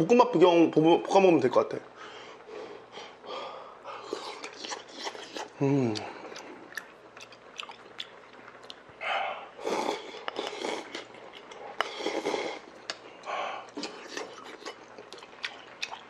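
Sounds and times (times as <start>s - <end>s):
chewing: 4.0s - 9.0s, 9.6s - 16.0s
person slurping broth: 9.3s - 11.1s, 11.8s - 12.7s.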